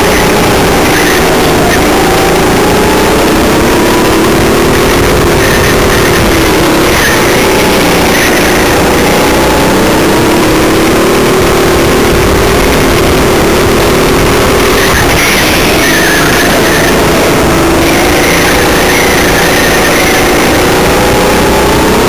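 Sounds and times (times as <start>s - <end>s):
go-kart engine running: 0.0s - 22.0s.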